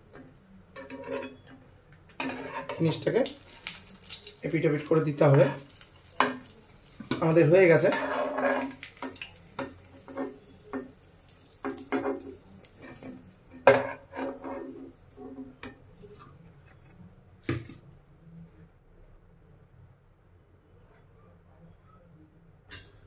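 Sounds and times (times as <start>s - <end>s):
utensils clattering on pan and dishes: 0.1s - 15.8s.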